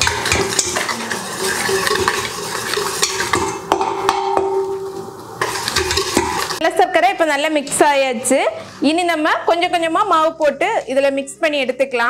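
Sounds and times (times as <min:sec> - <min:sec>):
whisk clinking against steel bowl: 0:00.0 - 0:06.6.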